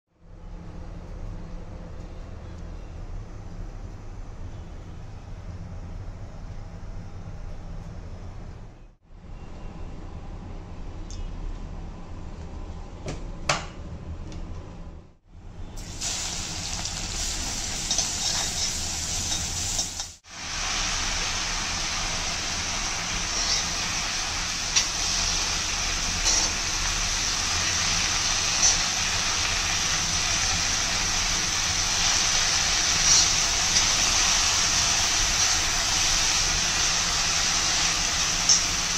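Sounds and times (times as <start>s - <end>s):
vegetables sizzling in hot oil: 15.8s - 38.9s.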